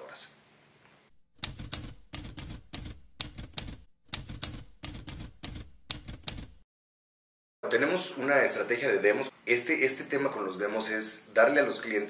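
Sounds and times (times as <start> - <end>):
typewriter key clicks: 1.4 - 6.5.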